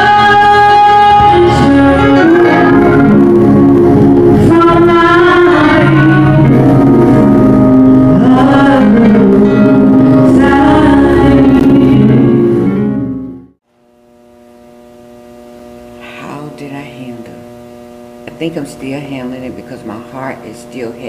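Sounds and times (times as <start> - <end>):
singing with instruments: 0.0 - 12.9.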